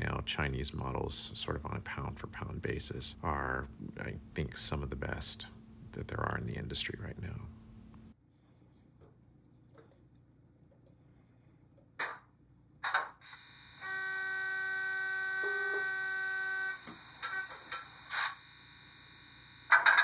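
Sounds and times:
held electronic tone: 13.2s - 20.0s.

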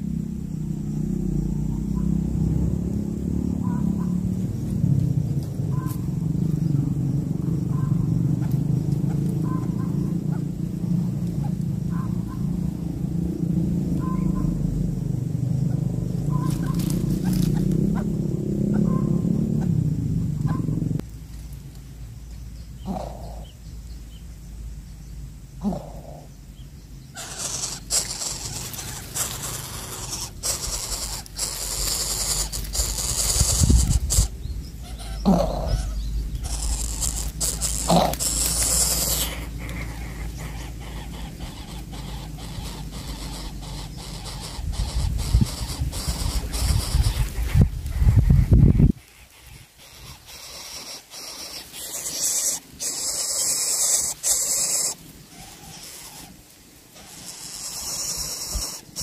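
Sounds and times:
nestling hissing raspily: 16.2s - 18.9s, 22.8s - 23.7s, 25.5s - 26.4s, 27.0s - 59.0s.

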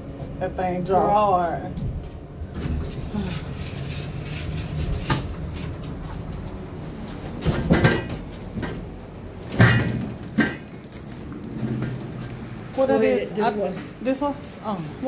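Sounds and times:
elevator low hum: 0.0s - 15.0s
elevator knocks and clunks: 4.5s - 12.9s.

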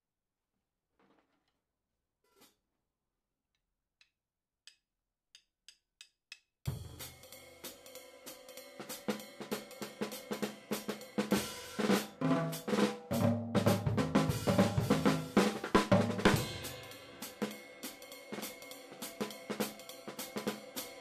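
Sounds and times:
jazz drum kit playing: 6.7s - 21.0s.

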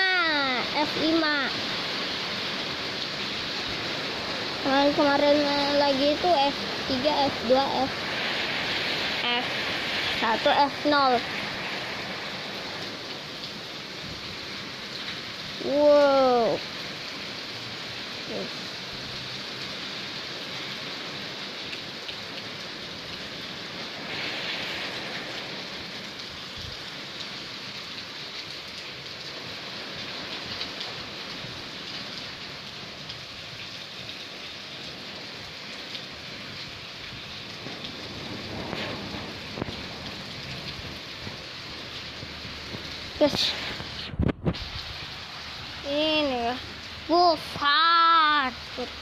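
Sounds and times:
rain falling: 0.0s - 49.0s.

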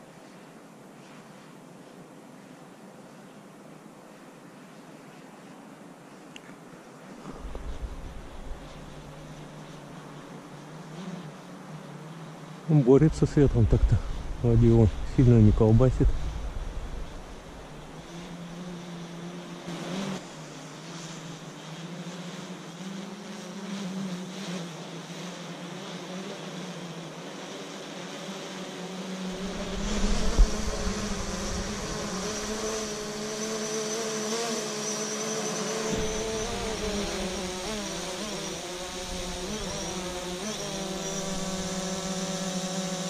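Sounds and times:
wind gusts: 7.1s - 10.6s, 12.6s - 18.6s, 29.3s - 33.8s, 35.6s - 42.2s
drone propellers buzzing: 7.2s - 23.6s, 26.3s - 43.0s
low rumble: 7.3s - 9.3s, 13.1s - 18.0s
thump: 35.9s - 37.4s.

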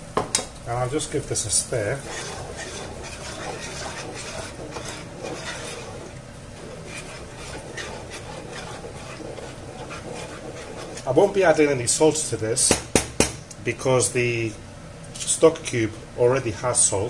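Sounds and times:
spatula scraping a pan: 1.0s - 11.8s
spatula stirring watery sauce: 1.0s - 12.3s.

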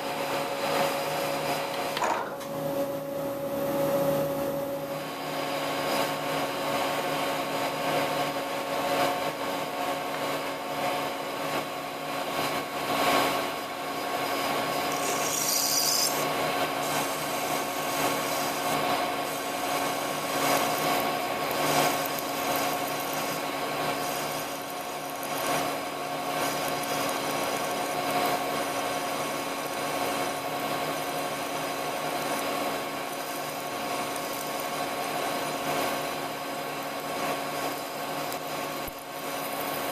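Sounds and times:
lathe motor and gear whine: 0.0s - 39.9s
drill scraping metal: 13.3s - 34.8s.

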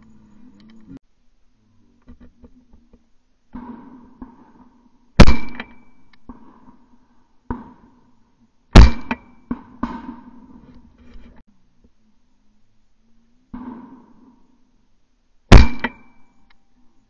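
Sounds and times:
loud ringing impacts: 3.5s - 10.6s, 15.5s - 16.5s.

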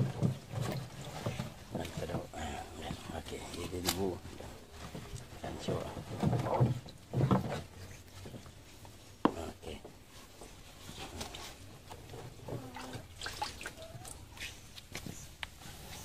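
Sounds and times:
water splashing and dripping: 12.4s - 14.6s.

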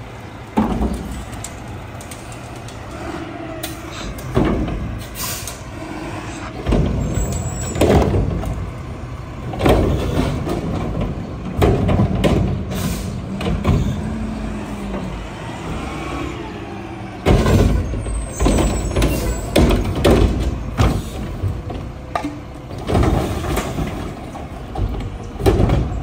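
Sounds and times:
garbage truck engine running: 0.0s - 26.0s
air brake hisses: 5.0s - 6.5s, 12.7s - 13.2s
plastic cart banging and clattering: 9.5s - 14.0s, 18.4s - 26.0s.

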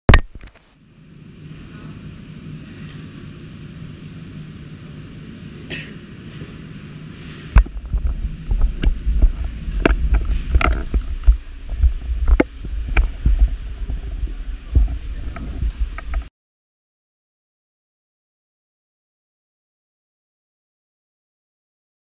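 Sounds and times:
steady low hum: 0.1s - 16.3s.

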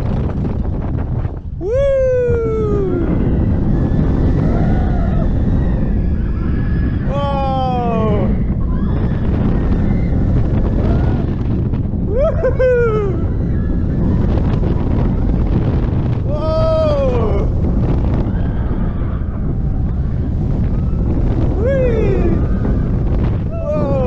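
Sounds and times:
roller coaster rumbling on track: 0.0s - 24.0s
wind rushing over microphone: 0.0s - 24.0s.

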